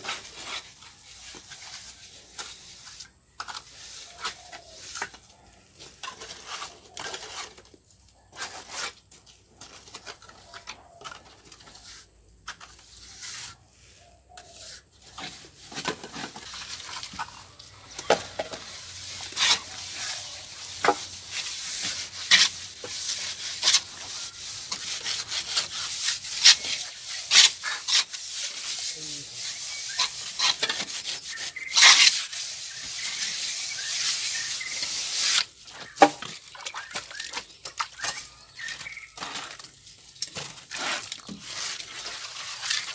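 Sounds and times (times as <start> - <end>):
float scraping plaster: 14.4 - 42.9.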